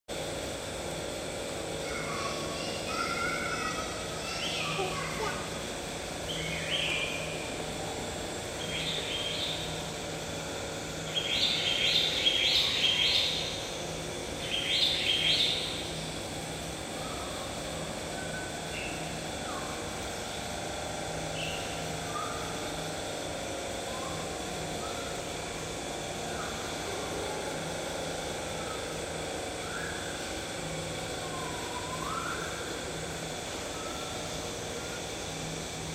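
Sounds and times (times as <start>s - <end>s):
steady low hum: 0.1s - 35.9s
bird chirping: 14.4s - 15.8s
bird whistles: 31.3s - 32.6s.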